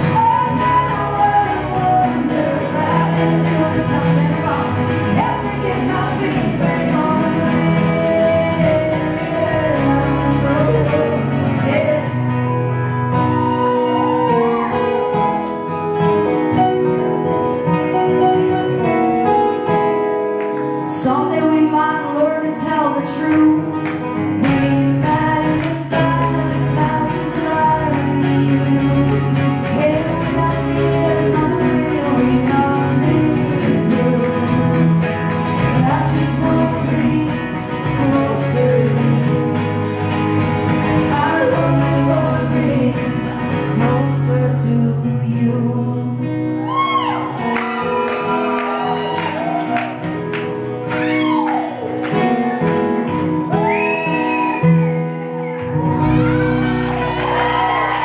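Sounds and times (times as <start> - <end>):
woman singing: 0.0 - 12.6, 20.9 - 47.0
acoustic guitars strummed and picked: 0.0 - 58.0.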